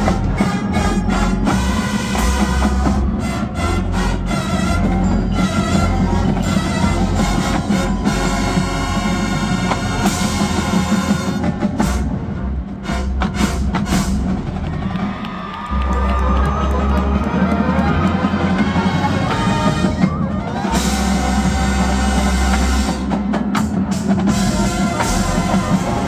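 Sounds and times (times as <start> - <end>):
marching band playing: 0.0 - 26.0
heavy drum strokes: 18.3 - 26.0.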